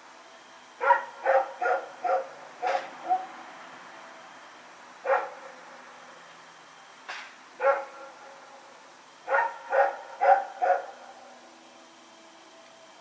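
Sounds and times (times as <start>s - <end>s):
dog barking: 0.8s - 3.3s, 5.0s - 5.6s, 7.6s - 8.2s, 9.3s - 11.0s.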